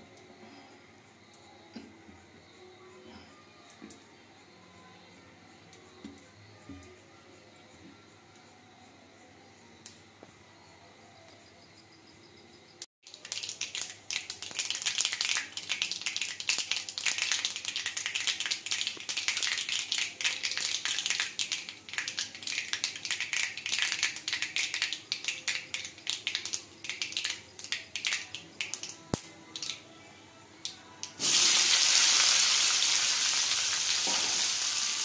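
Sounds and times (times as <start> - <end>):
spice seeds sizzling in hot oil: 13.0 - 29.8, 31.0 - 35.0.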